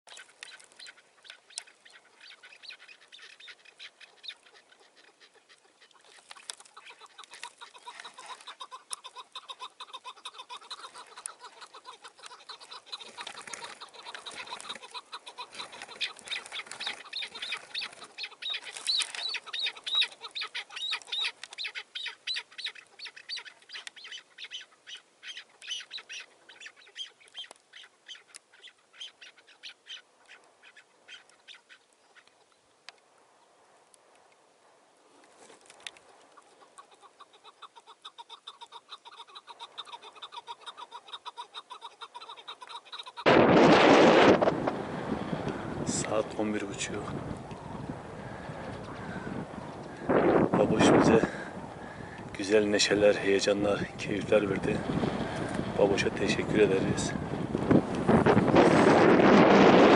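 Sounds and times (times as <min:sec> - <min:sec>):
partridges calling: 0:00.1 - 0:32.7, 0:36.1 - 0:43.3.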